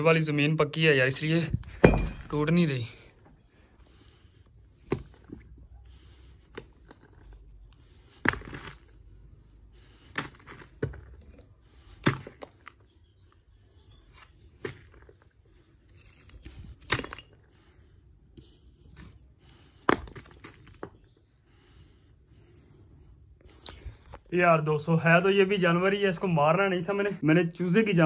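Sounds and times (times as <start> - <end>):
hard strikes on concrete: 1.7 - 2.5.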